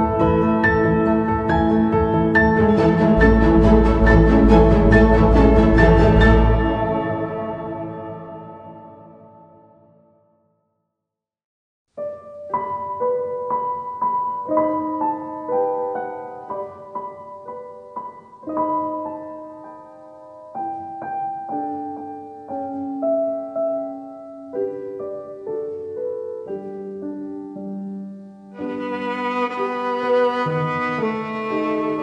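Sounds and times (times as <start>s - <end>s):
slow piano music: 0.0s - 10.6s, 11.9s - 32.0s.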